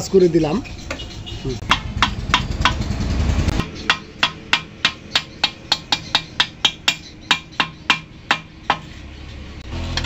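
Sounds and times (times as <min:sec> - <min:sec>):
mallet tapping metal: 0:01.6 - 0:02.8, 0:03.5 - 0:08.9.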